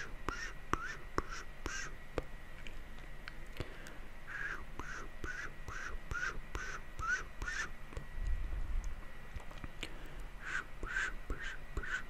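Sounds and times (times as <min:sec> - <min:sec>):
squeaky mouth noises: 0:00.0 - 0:02.0, 0:04.3 - 0:07.8, 0:10.4 - 0:12.0.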